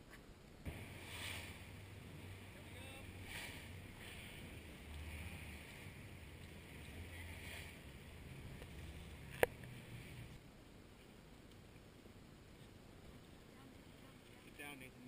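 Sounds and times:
low rumble: 0.7 - 10.4
water washing along boat hull: 0.7 - 10.4.

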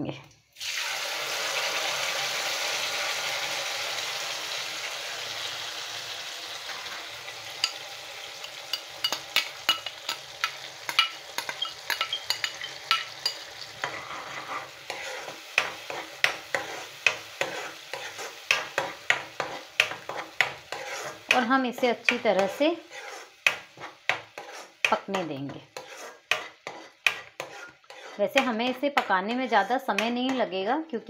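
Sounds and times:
puree sizzling in hot oil: 0.5 - 30.6
spoon stirring with clicks and pops: 8.4 - 21.4, 22.1 - 30.5.

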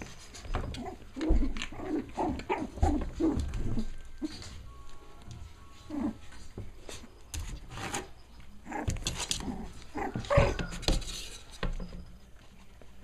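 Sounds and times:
puppies scuffling: 0.0 - 13.0
puppies yipping: 8.5 - 11.1.

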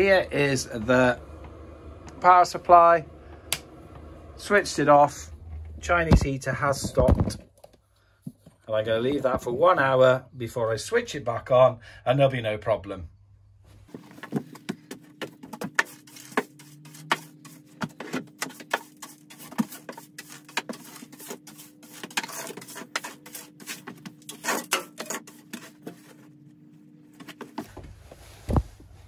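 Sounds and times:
faint steady hum: 0.0 - 15.4.

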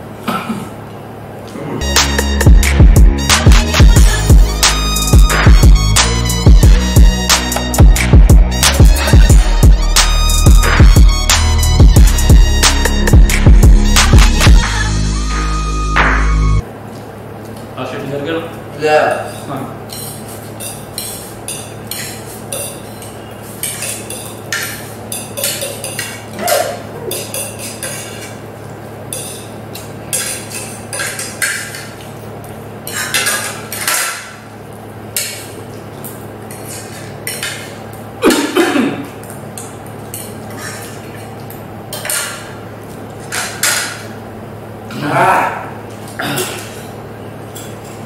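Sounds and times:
people eating noodles: 1.5 - 2.2, 19.2 - 28.5, 35.2 - 43.7, 44.9 - 48.0
forks clinking on plates: 19.0 - 28.4, 29.1 - 32.2, 32.8 - 34.4, 39.2 - 42.5.

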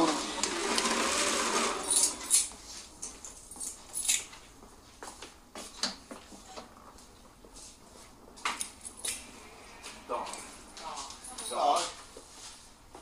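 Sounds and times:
footsteps on hard floor: 4.6 - 8.6, 9.8 - 13.0.

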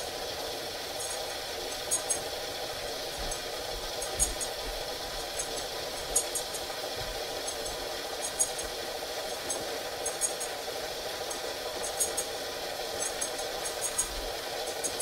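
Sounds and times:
video recorder mechanical whir: 0.0 - 15.0
high-pitched ticks: 1.0 - 2.3, 3.2 - 4.6, 5.2 - 6.8, 7.4 - 10.6, 11.2 - 15.0.

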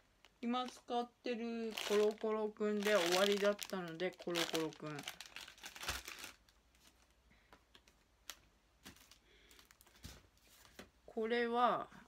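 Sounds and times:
plastic packaging rustling: 1.6 - 10.8.

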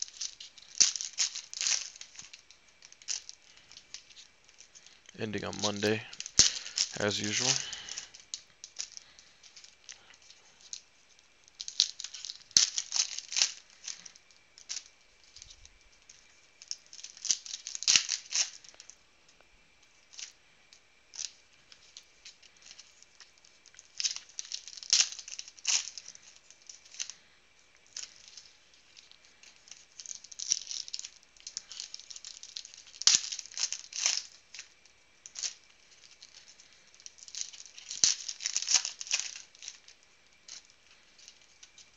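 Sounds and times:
cards being shuffled: 0.0 - 18.9, 35.3 - 41.9
foil wrappers crinkling and tearing: 0.0 - 19.0, 19.8 - 41.9.

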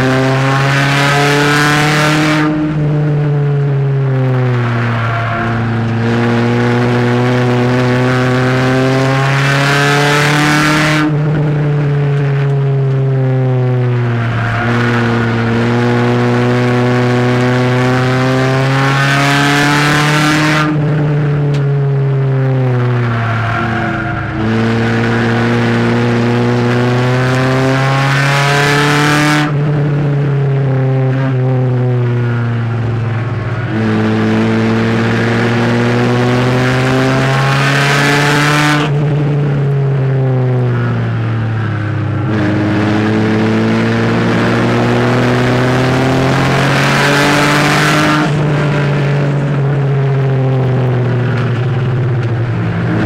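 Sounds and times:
race car engine from inside cabin: 0.0 - 53.0.

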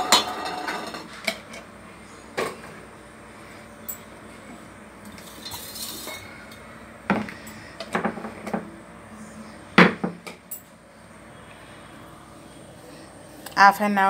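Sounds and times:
metal cookware clanking: 0.0 - 1.4, 5.2 - 6.3.

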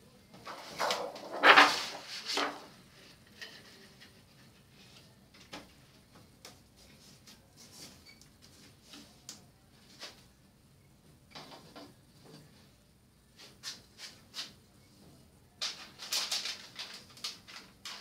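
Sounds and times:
plastic film rustling: 15.6 - 18.0.

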